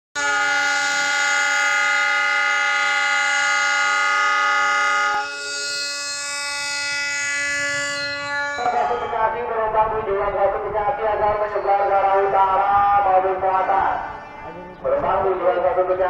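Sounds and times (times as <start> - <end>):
locomotive air horn blast: 0.2 - 9.2.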